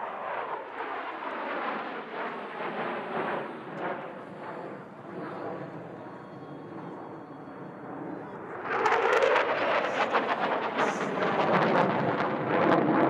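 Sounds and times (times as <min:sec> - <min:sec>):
fighter jets roaring: 0:08.3 - 0:12.9.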